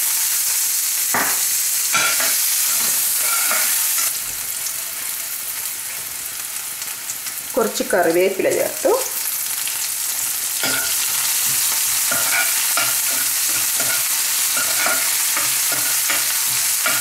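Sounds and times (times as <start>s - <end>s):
food sizzling in hot oil: 0.0s - 17.0s
spoon scraping a pan: 1.2s - 4.1s, 10.5s - 17.0s.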